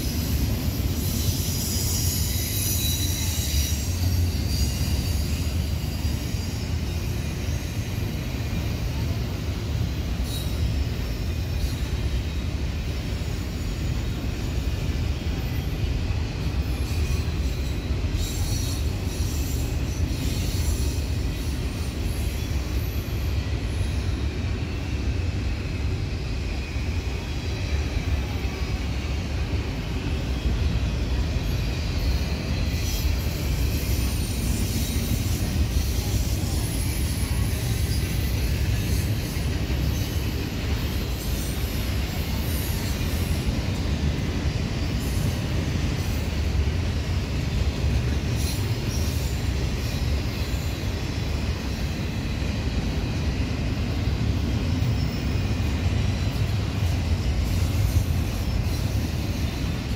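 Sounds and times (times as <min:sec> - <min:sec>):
brief high wheel squeals: 0:00.0 - 0:59.9
rumble of steel wheels on rail: 0:00.0 - 0:59.9.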